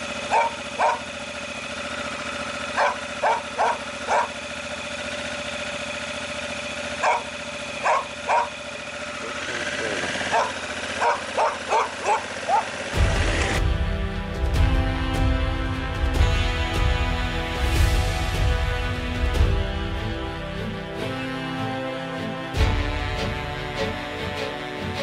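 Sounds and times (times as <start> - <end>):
motorcycle engine idling: 0.0 - 25.0
dog barking: 0.3 - 1.1, 2.8 - 4.4, 7.0 - 8.6, 10.2 - 12.8.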